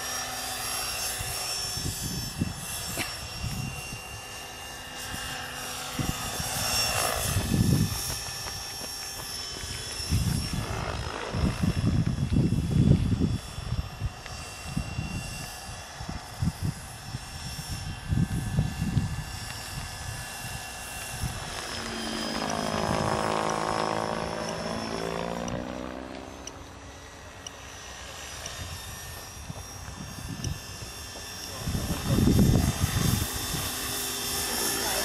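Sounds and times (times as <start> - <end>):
rc helicopter rotor whine: 0.0 - 35.0
wind buffeting microphone: 5.0 - 27.1, 28.5 - 34.1.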